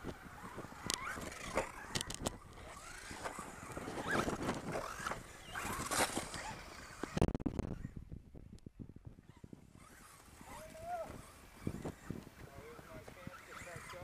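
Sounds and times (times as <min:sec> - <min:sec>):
tyres scrabbling on dirt: 0:00.0 - 0:07.8
rc car motor whine: 0:00.0 - 0:08.0, 0:08.9 - 0:14.0.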